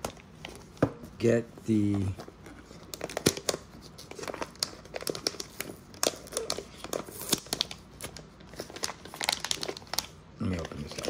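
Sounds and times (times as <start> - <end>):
plastic bag crinkling: 2.6 - 11.0.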